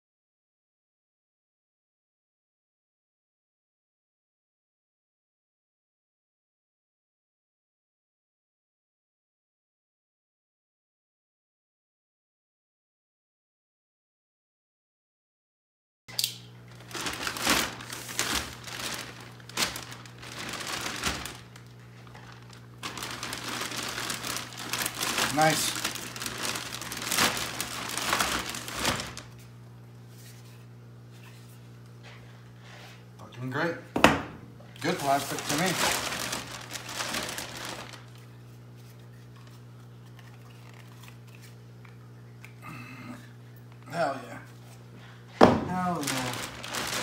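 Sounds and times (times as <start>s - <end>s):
low electrical hum: 16.1s - 47.0s
plastic bag crinkling: 16.7s - 29.5s, 34.7s - 42.2s, 45.4s - 47.0s.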